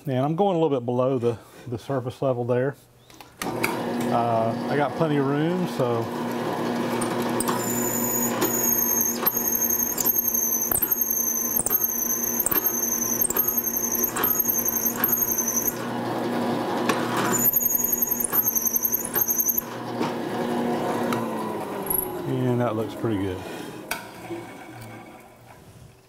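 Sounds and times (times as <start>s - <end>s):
drill press motor hum: 3.4s - 25.6s
high wavering chatter squeal: 7.8s - 15.8s, 17.3s - 19.7s.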